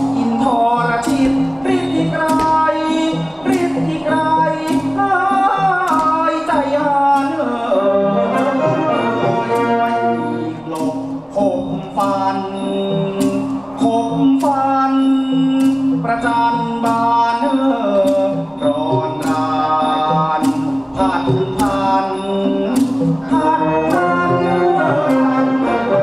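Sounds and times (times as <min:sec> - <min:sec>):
sharp percussion strikes: 0:00.0 - 0:26.0
wavering traditional melody: 0:00.0 - 0:26.0.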